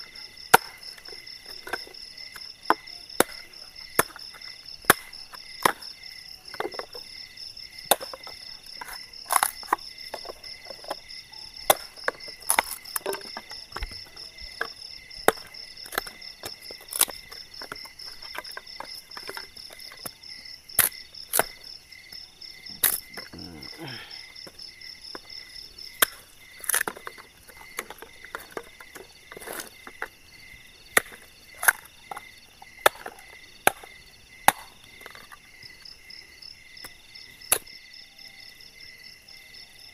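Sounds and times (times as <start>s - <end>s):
insects trilling: 0.0s - 39.9s
blade chopping wood: 0.4s - 5.9s, 6.5s - 7.1s, 7.7s - 21.7s, 22.7s - 25.3s, 25.9s - 30.2s, 30.9s - 35.4s.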